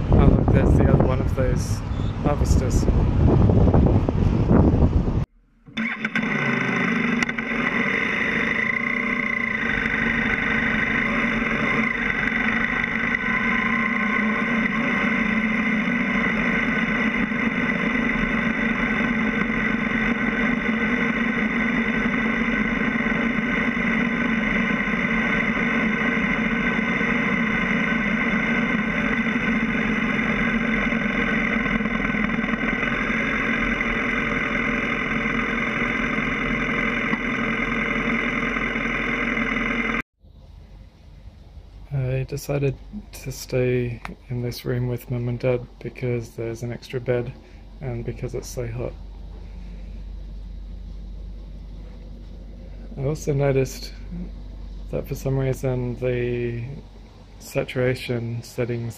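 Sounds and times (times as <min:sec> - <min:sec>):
motorcycle engine running: 0:05.6 - 0:40.0.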